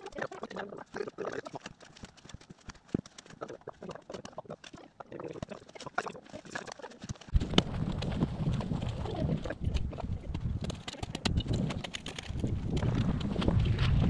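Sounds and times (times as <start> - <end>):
wind rumbling on microphone: 7.3 - 14.0.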